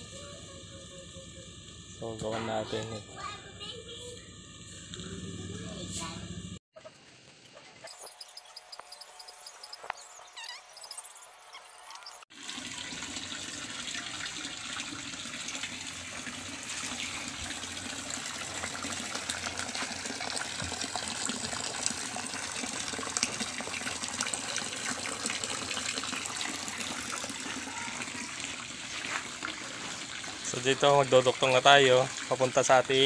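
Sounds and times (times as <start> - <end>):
water pouring into plastic basin: 12.3 - 33.0.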